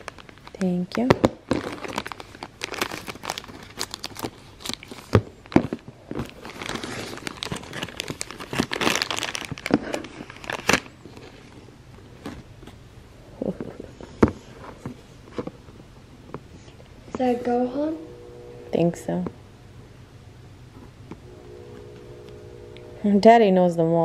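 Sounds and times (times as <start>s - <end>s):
plastic wrapper crinkling: 0.0s - 11.6s.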